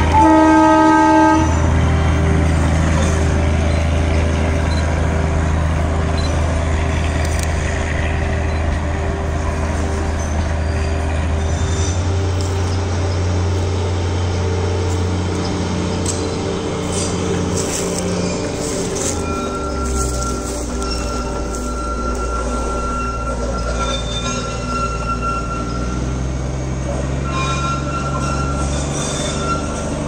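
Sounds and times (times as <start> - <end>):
train horn: 0.0 - 3.4, 27.0 - 30.0
diesel engine droning: 0.0 - 30.0
rumble of moving train: 0.0 - 30.0.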